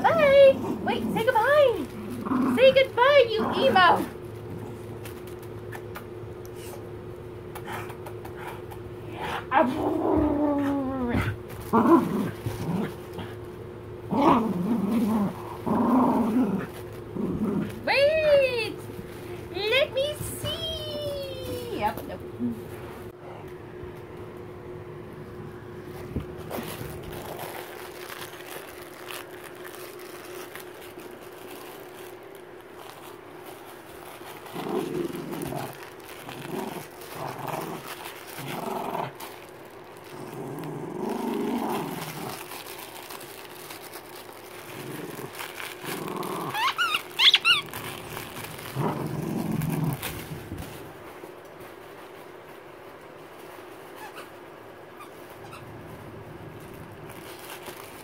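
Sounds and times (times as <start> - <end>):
dog growling in play: 0.0 - 5.0, 7.6 - 17.9, 26.4 - 29.2, 34.1 - 42.9, 44.5 - 50.8.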